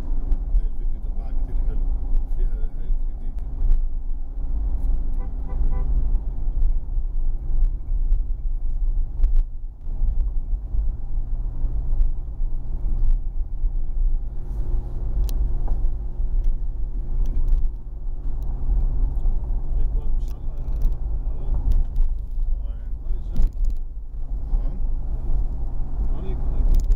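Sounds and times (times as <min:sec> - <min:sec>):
car road and engine rumble: 0:00.0 - 0:26.9
small clicks and knocks: 0:20.2 - 0:21.0, 0:23.3 - 0:23.9, 0:26.6 - 0:26.9.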